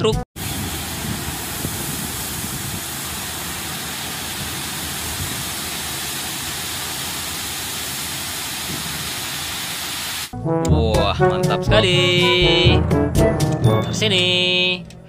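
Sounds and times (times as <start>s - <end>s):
truck diesel engine rumble: 0.4s - 9.4s
gravel sliding hiss: 0.4s - 10.3s.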